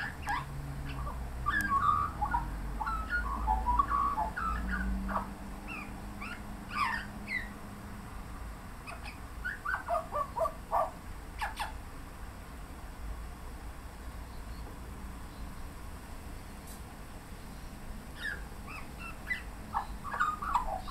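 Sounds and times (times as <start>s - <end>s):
magpie singing warbled notes: 0.0s - 7.5s, 18.2s - 20.9s.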